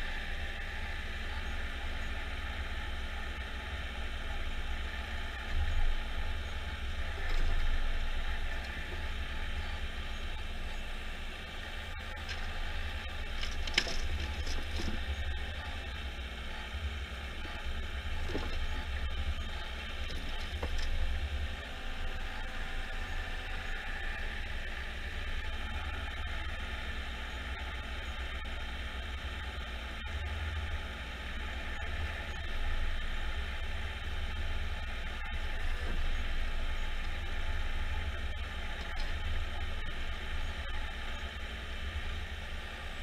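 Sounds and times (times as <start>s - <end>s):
diesel engine humming: 0.0s - 27.2s.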